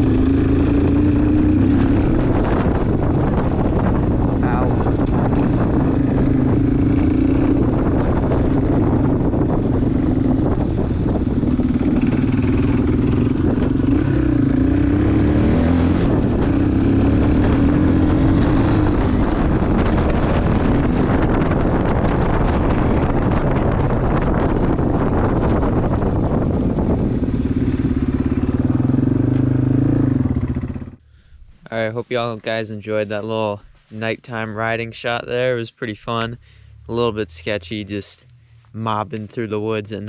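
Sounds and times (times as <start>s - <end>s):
motorcycle engine running: 0.0s - 31.2s.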